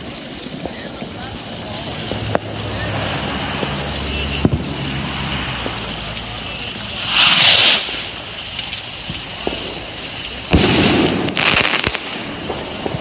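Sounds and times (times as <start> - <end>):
firework bang: 0.0 - 13.0
firework crackling after burst: 0.0 - 13.0
firework rocket whoosh: 0.0 - 13.0.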